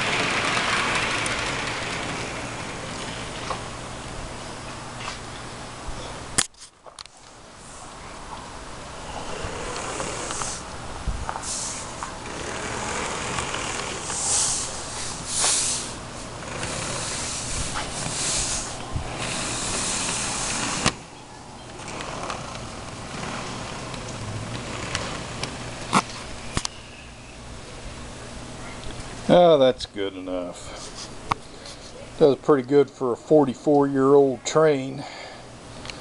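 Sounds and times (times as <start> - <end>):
toy train motor whirring: 0.0 - 3.1, 9.4 - 10.6, 11.4 - 21.1, 21.8 - 25.7
cars rattling along rails: 0.0 - 4.1, 11.4 - 26.6
bursts of hiss: 9.0 - 21.1.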